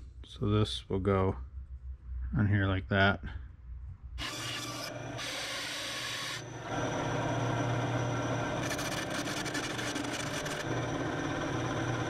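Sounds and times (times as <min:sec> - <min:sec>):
band saw cutting wood: 0:04.2 - 0:06.7, 0:08.6 - 0:10.7
band saw motor hum: 0:04.2 - 0:12.0.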